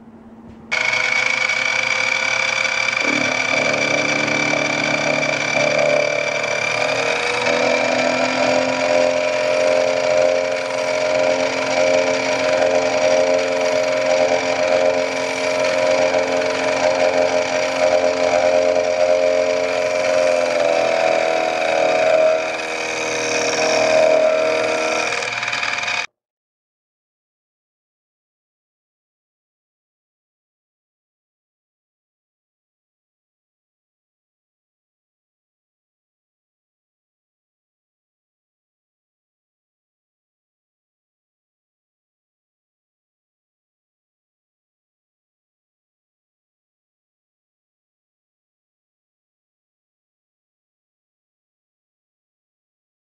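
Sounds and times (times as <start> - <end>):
milling machine spindle whine: 0.7 - 26.1.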